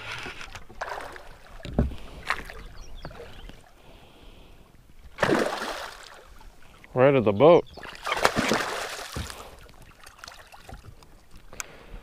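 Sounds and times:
fish splashing and thrashing: 0.0s - 3.7s, 5.0s - 6.8s, 7.8s - 11.5s.

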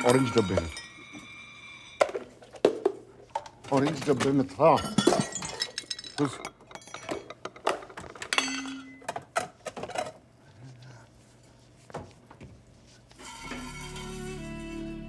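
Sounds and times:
dishes clattering and clinking: 0.0s - 10.3s
soft string music: 13.3s - 15.0s.

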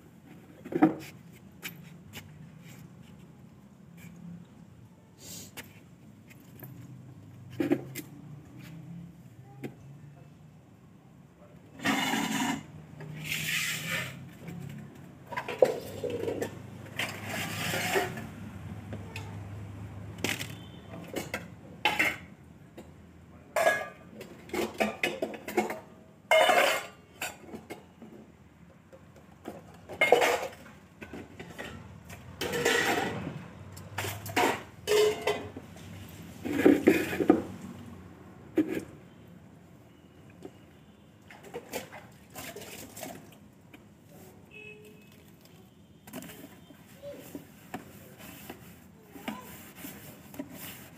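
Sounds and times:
steel dishes clattering: 23.6s - 27.5s, 32.4s - 33.2s, 34.0s - 35.5s.

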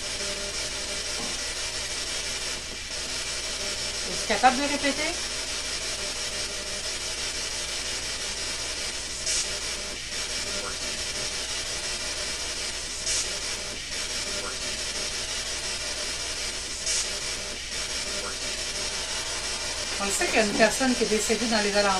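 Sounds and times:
electronic static hiss: 0.0s - 21.9s
low hum: 14.4s - 21.9s.

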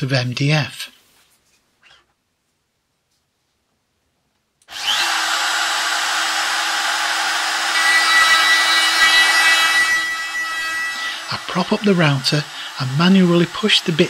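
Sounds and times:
router bit cutting board: 4.7s - 14.0s
trim router whine: 4.7s - 14.0s.

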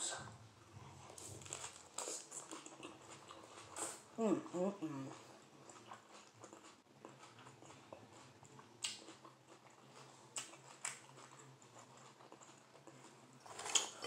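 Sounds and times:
faint chewing: 0.6s - 14.0s
crisp lettuce crunches: 1.2s - 2.7s.

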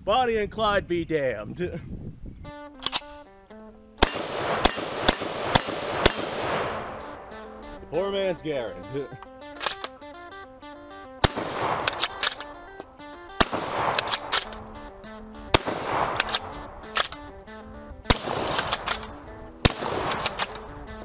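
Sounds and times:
background music: 2.4s - 21.0s
metallic bolt clicks: 2.8s - 3.2s, 9.2s - 10.1s, 11.8s - 13.1s, 13.9s - 15.2s, 16.1s - 17.4s, 18.4s - 19.3s, 20.1s - 21.0s
shotgun shots: 4.0s - 7.6s, 11.2s - 17.4s, 18.0s - 21.0s.

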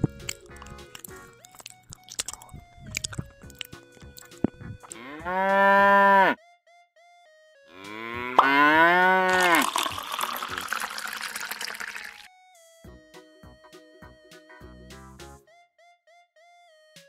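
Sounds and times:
light plinking music: 0.0s - 5.3s
cow mooing: 4.9s - 6.4s, 7.7s - 9.6s
liquid pouring into a tub: 9.3s - 12.3s.

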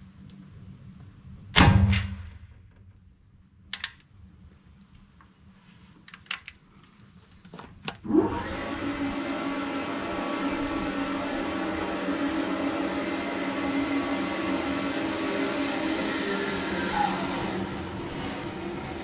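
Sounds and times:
steady whirring hum: 0.0s - 19.0s
rifle shot with ringing tail: 1.6s - 2.5s
rifle handling clicks: 3.7s - 4.1s.

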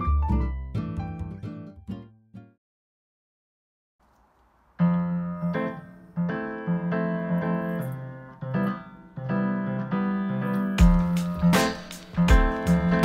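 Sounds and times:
gentle piano melody: 0.0s - 2.0s, 4.8s - 13.0s.

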